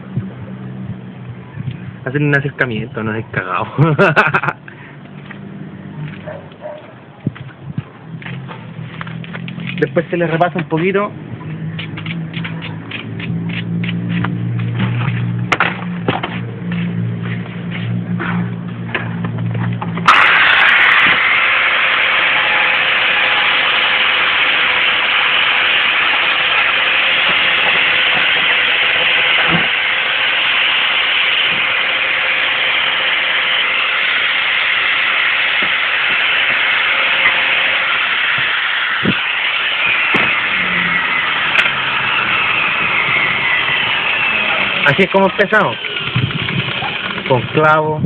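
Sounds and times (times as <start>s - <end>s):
angle grinder on metal: 20.0s - 48.0s.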